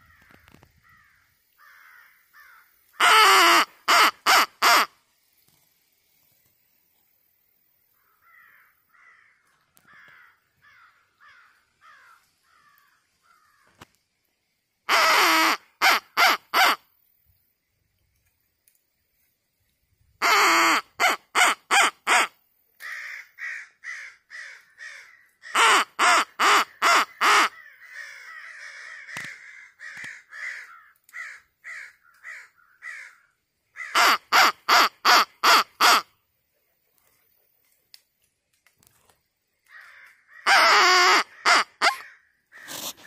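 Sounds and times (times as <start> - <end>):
distant crows cawing: 0.0 - 4.1, 8.0 - 13.9, 22.8 - 34.9, 39.6 - 42.9
crow cawing loudly: 0.0 - 4.9, 8.1 - 13.7, 20.2 - 34.9, 39.7 - 42.9.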